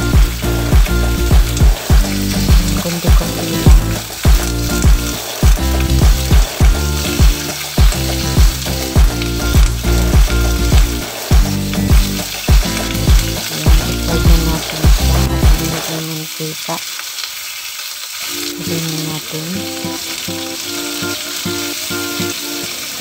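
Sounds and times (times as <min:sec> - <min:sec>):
background music with steady beat: 0:00.0 - 0:15.9
chicken sizzling in a pan: 0:00.0 - 0:23.0.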